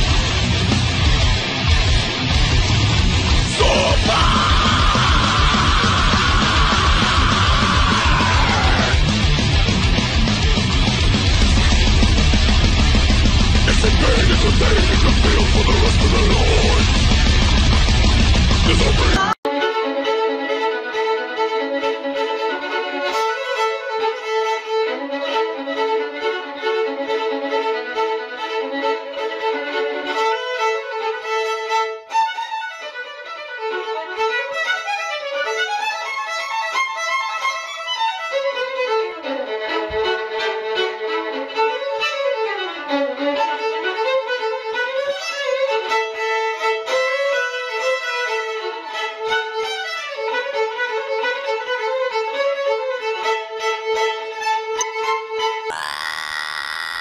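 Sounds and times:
violin melody: 19.4 - 55.7.

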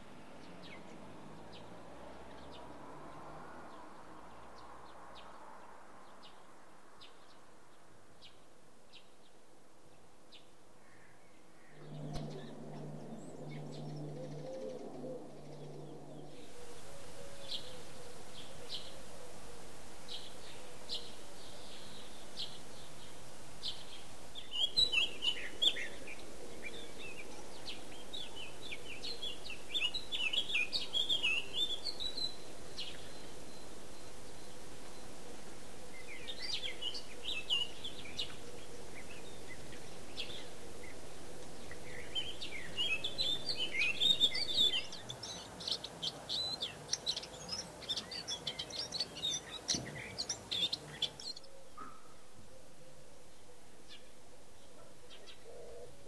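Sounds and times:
songbirds chirping: 0.0 - 56.0
low hum: 11.4 - 45.1.

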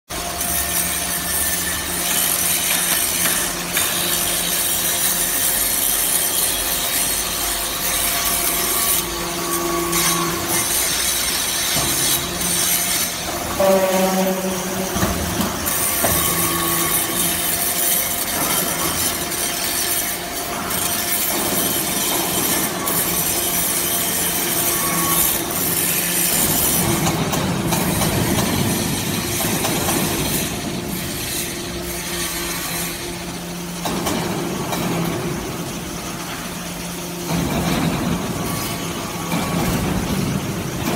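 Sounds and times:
machine hum: 0.1 - 40.9
metal chips rattling on conveyor: 0.2 - 9.2, 15.3 - 33.1.

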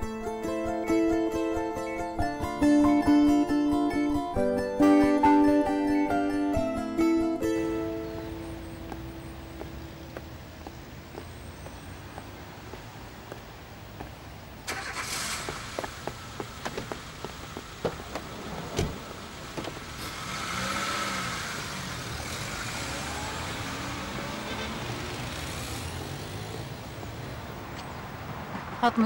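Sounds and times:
car passing: 5.2 - 29.0
footsteps on pavement: 7.3 - 20.0.

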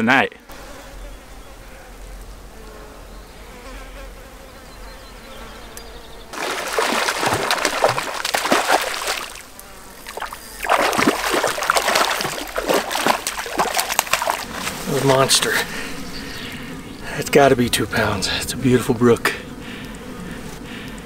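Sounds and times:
fish splashing in water: 6.3 - 14.8.

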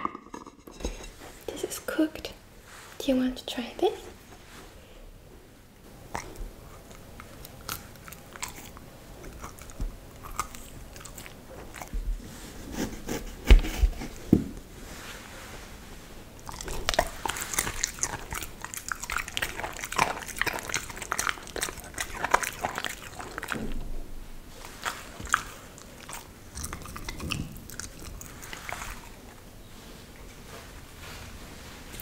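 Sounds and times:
dog biting and chewing food: 5.9 - 12.0, 16.4 - 23.8, 24.6 - 29.4.

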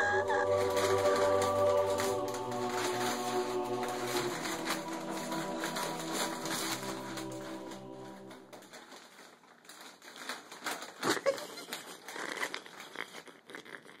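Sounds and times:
music: 0.0 - 8.5
plastic snack bag crinkling: 0.0 - 14.0.

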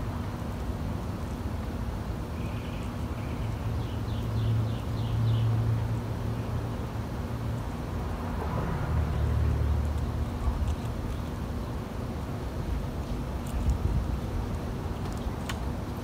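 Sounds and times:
bird chirping: 2.4 - 5.6
passing vehicles rumbling: 3.3 - 15.8.

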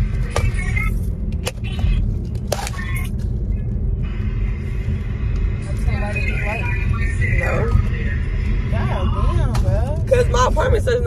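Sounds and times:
car engine and tyres rumbling: 0.0 - 11.0.

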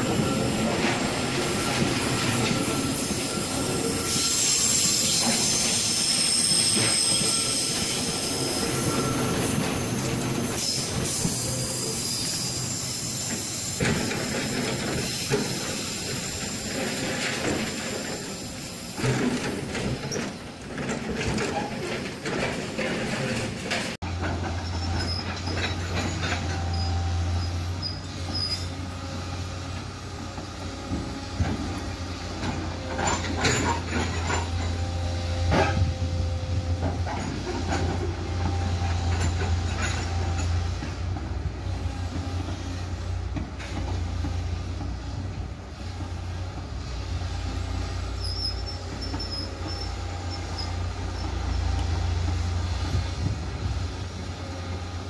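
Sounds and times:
metallic clanks from wagons: 0.0 - 41.4
faint high squeaks: 48.0 - 51.7.

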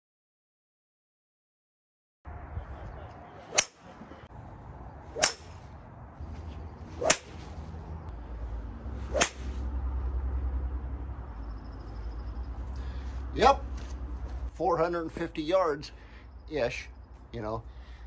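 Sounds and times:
golf club swishing: 3.4 - 4.3, 5.0 - 9.8.

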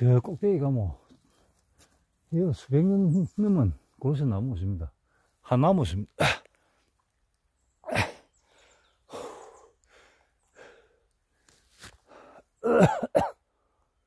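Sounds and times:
man coughing: 7.9 - 8.2, 12.6 - 13.4
heavy breathing: 8.0 - 11.1.

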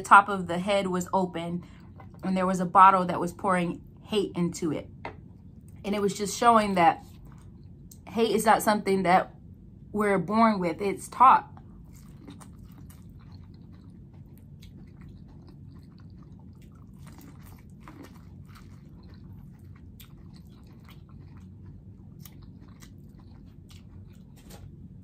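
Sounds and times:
chewing crunches: 11.6 - 25.0.

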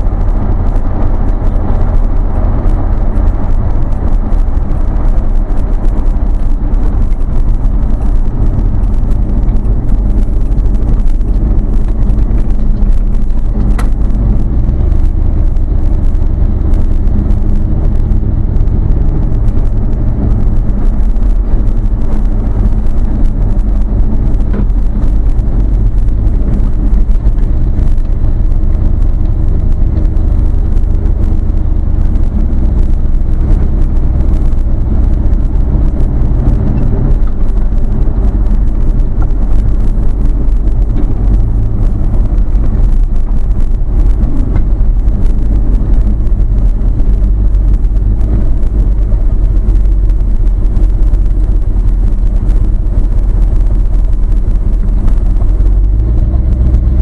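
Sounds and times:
vehicle engine and road noise: 0.0 - 57.0.

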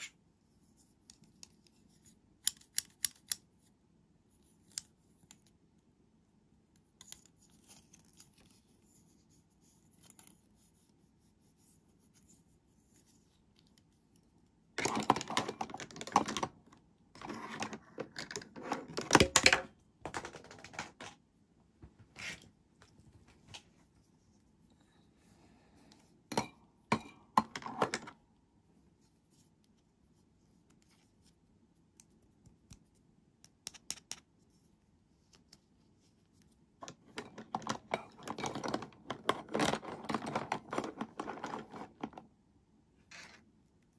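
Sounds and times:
plastic toys clattering: 14.8 - 21.2, 36.8 - 42.2.

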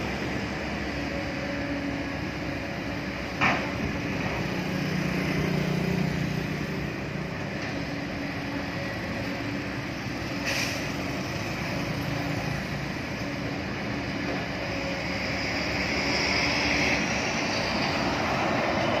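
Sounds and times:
heavy diesel engines running: 0.0 - 19.0
road traffic passing: 0.0 - 19.0
truck approaching: 0.0 - 19.0
brief hiss: 10.4 - 11.0.

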